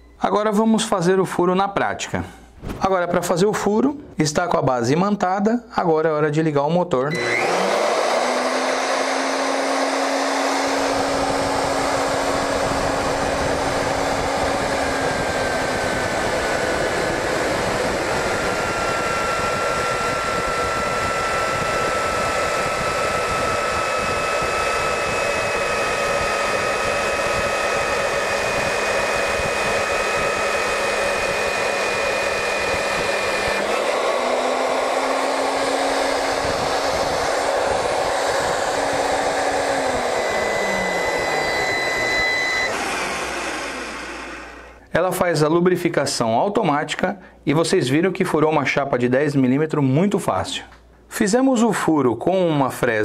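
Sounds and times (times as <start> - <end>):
cutter boring through steel: 7.1 - 44.8
drill motor humming and whining: 7.1 - 44.8.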